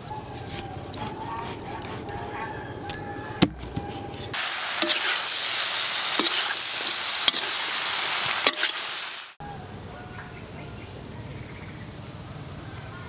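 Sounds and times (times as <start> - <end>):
cleaver chopping on wooden board: 3.4 - 3.9
food sizzling in a wok: 4.4 - 9.4.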